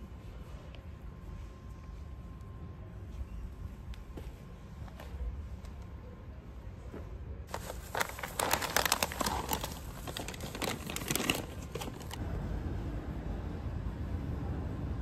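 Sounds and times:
packaging crinkling: 7.5s - 12.2s.

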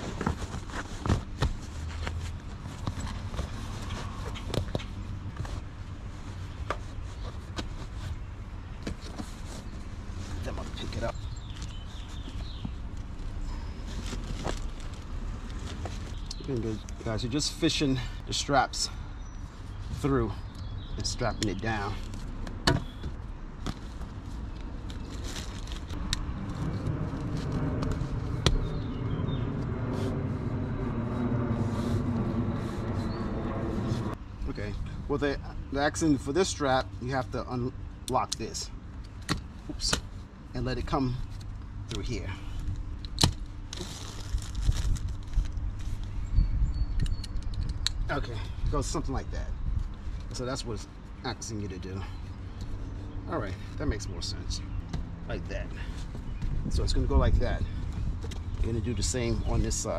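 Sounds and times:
seat cover rustling and rubbing: 0.0s - 16.8s, 21.6s - 34.2s
low rumble: 25.6s - 35.1s.

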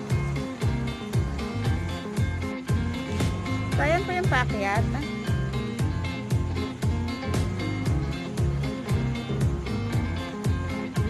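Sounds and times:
bass line: 0.0s - 11.0s
drum strokes: 0.0s - 11.0s.

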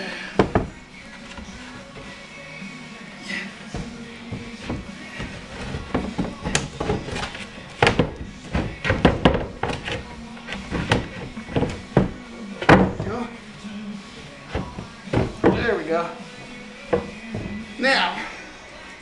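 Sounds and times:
wooden knocks and thumps: 0.4s - 2.1s, 3.7s - 13.3s, 14.5s - 15.9s, 16.9s - 17.7s.

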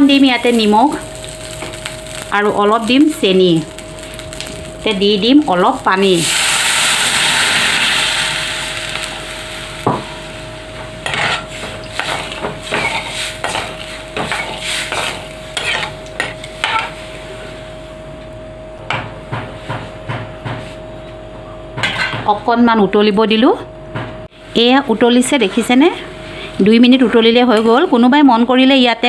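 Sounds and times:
water sizzling on hot oil: 0.0s - 17.2s
ladle clinking and scraping pan: 11.1s - 17.0s.

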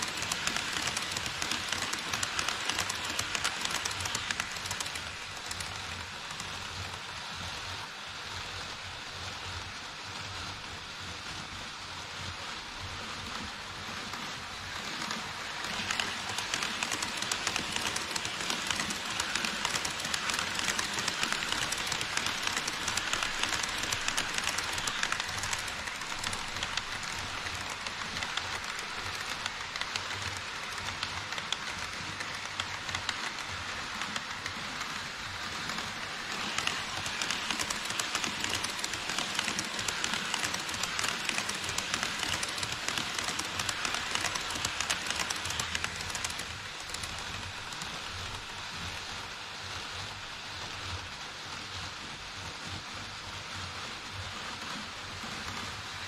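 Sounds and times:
model train wheels rattling: 0.0s - 7.2s, 13.0s - 49.0s.

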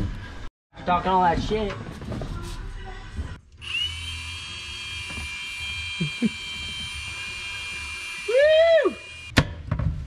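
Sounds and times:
cordless drill whining: 3.6s - 9.3s.

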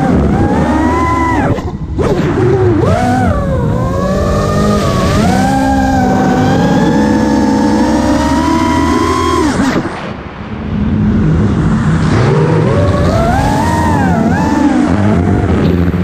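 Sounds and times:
quadcopter motors whining: 0.0s - 9.9s, 12.3s - 16.0s
air rushing past: 9.6s - 14.2s.

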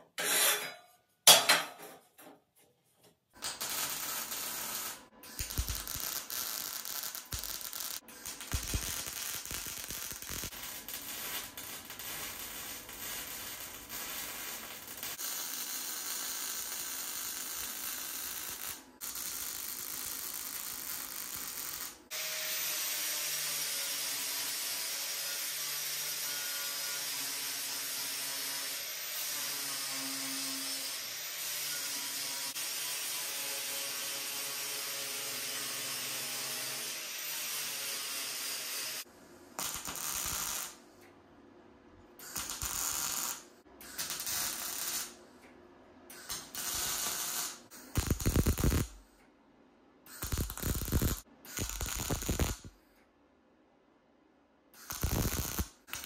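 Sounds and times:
tack welding bursts: 3.4s - 22.0s, 39.6s - 40.8s, 42.2s - 45.2s, 46.1s - 49.0s, 50.1s - 52.7s, 54.8s - 56.0s
welder crackling: 3.4s - 22.0s, 39.6s - 40.8s, 42.2s - 45.2s, 46.1s - 49.0s, 50.1s - 52.7s, 54.8s - 56.0s.

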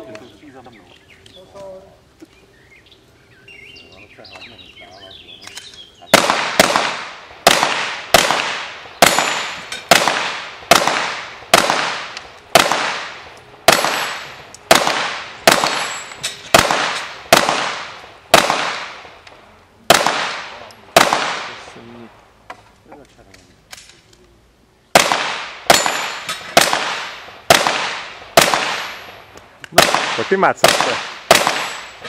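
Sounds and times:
pistol shots with echo: 6.1s - 19.1s, 19.9s - 21.7s, 24.9s - 32.0s.

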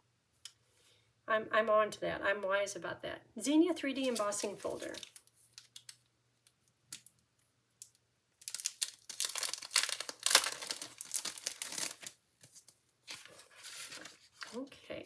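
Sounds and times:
plastic packaging crinkling: 4.0s - 6.1s, 7.9s - 14.8s.

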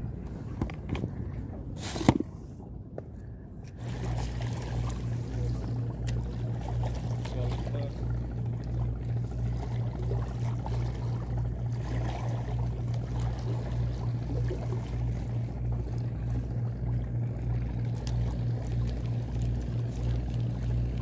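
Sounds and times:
low engine throb: 2.4s - 21.0s
water lapping against rocks: 3.7s - 21.0s.

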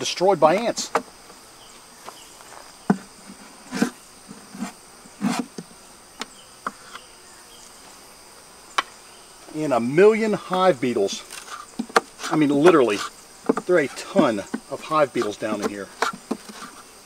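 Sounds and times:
insects droning: 0.0s - 17.0s
wooden frames knocking: 11.7s - 12.8s, 13.4s - 16.6s.

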